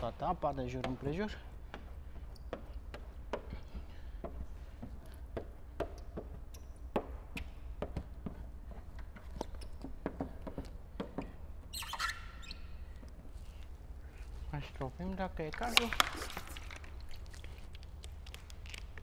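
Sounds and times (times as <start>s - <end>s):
squeegee scraping and squeaking: 8.0s - 19.0s.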